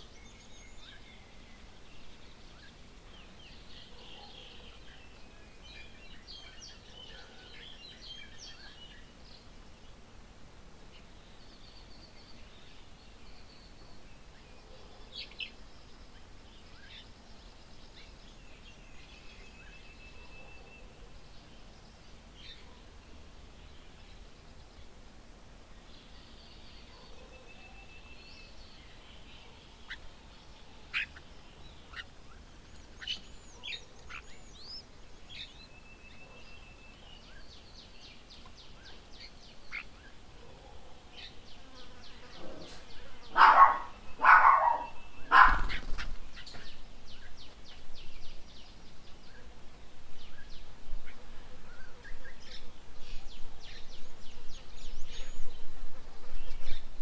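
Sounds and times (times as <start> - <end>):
birds chirping and trilling: 0.0 - 10.1, 10.8 - 25.0, 25.8 - 57.0
loud harsh bird squawks: 43.3 - 46.1.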